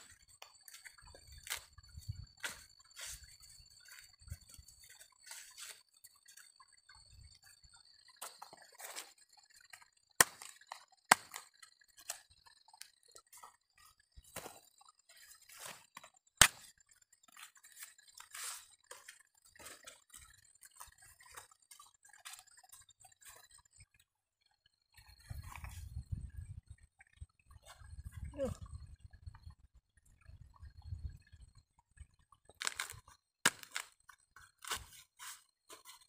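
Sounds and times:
machete chopping corn: 0:10.2 - 0:11.5, 0:16.4 - 0:16.7, 0:32.6 - 0:33.9, 0:34.6 - 0:35.4
corn husk rustling and tearing: 0:32.6 - 0:33.9.

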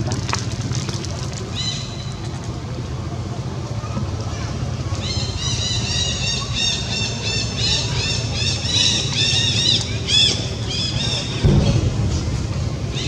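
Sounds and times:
low thump: 0:11.4 - 0:13.0.

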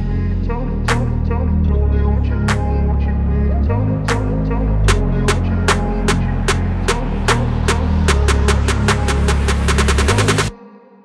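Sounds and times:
deep sustained bass line: 0:00.0 - 0:10.5
beat with sharp hits: 0:04.9 - 0:10.5.

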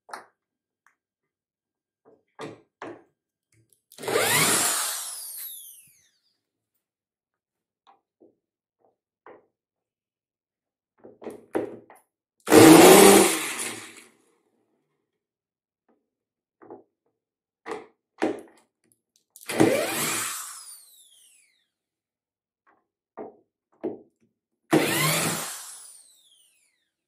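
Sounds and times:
power drill driving screws: 0:04.0 - 0:06.2, 0:12.5 - 0:14.0, 0:19.4 - 0:21.6, 0:24.7 - 0:26.8.

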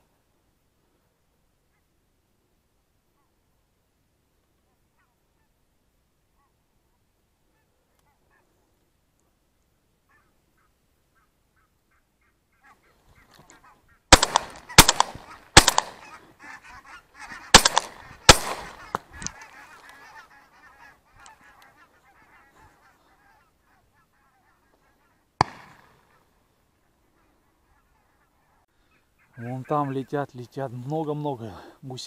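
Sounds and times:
geese honking: 0:10.1 - 0:25.3, 0:27.1 - 0:30.5
loud shotgun shots: 0:14.1 - 0:16.2, 0:17.5 - 0:19.4, 0:25.4 - 0:26.1.

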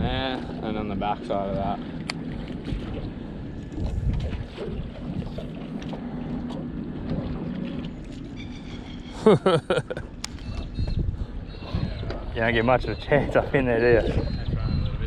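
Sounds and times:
wind on microphone: 0:00.0 - 0:05.9, 0:10.2 - 0:15.0
water moving around boat: 0:00.0 - 0:15.0.

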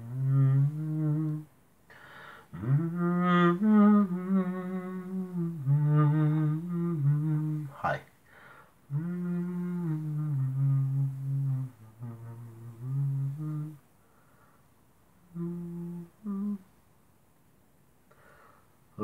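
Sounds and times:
man humming a slow tune: 0:00.0 - 0:01.5, 0:02.5 - 0:08.0, 0:08.9 - 0:13.8, 0:15.2 - 0:16.7.

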